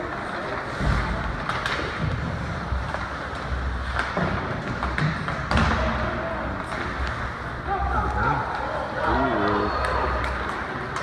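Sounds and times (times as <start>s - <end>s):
arena noise: 0.0s - 11.0s
hockey sticks and puck knocking: 0.8s - 7.4s.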